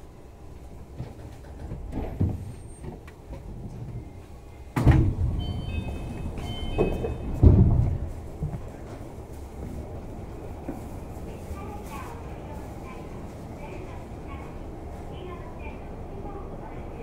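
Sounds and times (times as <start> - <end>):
sliding doors rushing: 0.5 - 11.0
short high beeps: 5.4 - 7.4.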